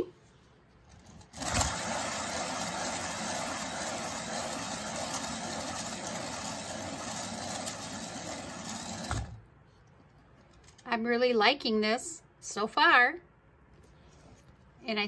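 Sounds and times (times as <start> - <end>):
spinner whirring: 1.0 - 9.4.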